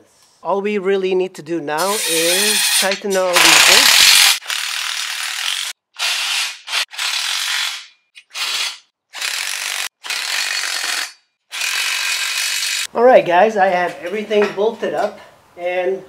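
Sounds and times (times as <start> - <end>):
impact driver running: 3.4 - 12.9.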